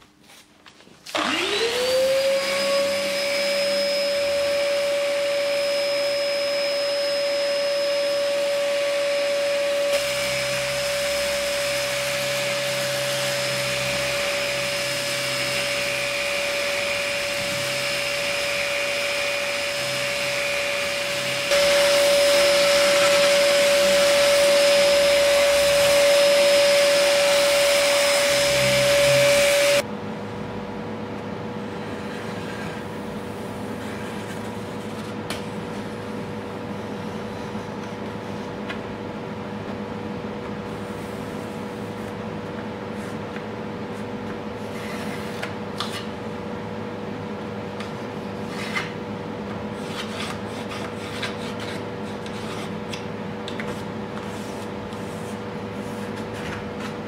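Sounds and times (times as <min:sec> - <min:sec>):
orbital sander whining: 0:01.2 - 0:29.8.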